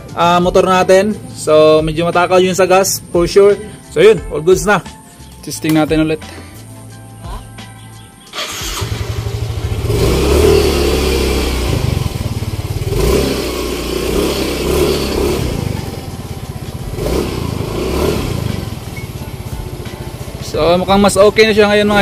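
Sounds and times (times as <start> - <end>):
scooter engine revving: 8.3 - 22.0.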